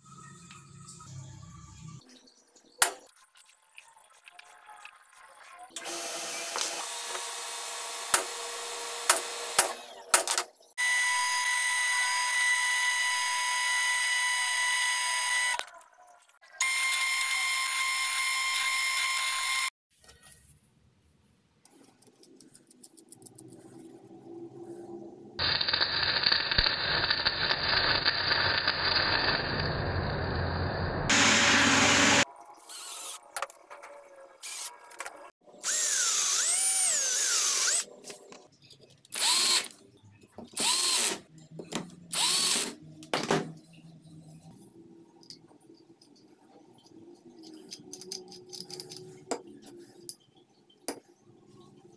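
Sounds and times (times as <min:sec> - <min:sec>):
electric drill boring steel: 0:05.8 - 0:10.0, 0:10.8 - 0:15.6, 0:16.6 - 0:19.7, 0:25.4 - 0:33.2, 0:35.6 - 0:37.9, 0:39.2 - 0:39.7, 0:40.6 - 0:41.2, 0:42.1 - 0:42.8
welding crackle: 0:25.4 - 0:31.0.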